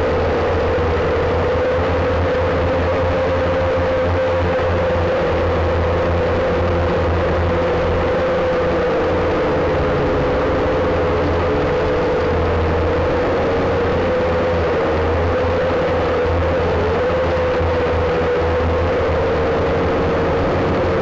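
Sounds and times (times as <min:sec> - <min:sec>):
quadcopter motors buzzing: 0:00.0 - 0:21.0
low rumble: 0:04.4 - 0:21.0.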